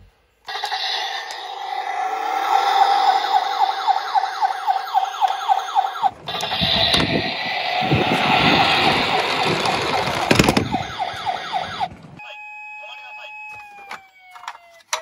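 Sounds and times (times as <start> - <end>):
toy rolling down wooden slope: 0.5 - 11.9
toy ambulance siren wailing: 0.5 - 15.0.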